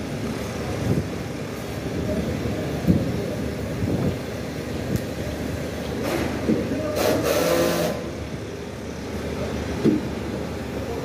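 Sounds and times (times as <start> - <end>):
loud hiss with pitched tones: 2.3 - 10.9.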